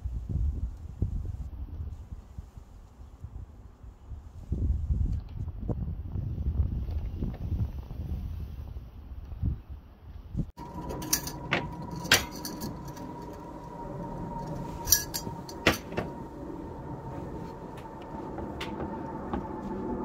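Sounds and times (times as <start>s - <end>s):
wind buffeting microphone: 0.0s - 20.0s
sharp clicks and clinks: 10.6s - 16.2s
faint steady high tone: 10.6s - 19.5s.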